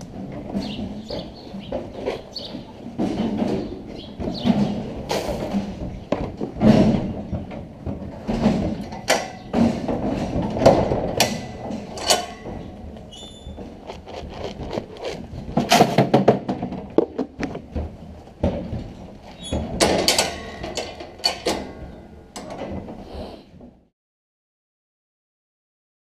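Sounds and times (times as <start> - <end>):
metal gate rattling and clanking: 0.0 - 14.1, 15.2 - 23.0
high squeak: 13.1 - 13.6.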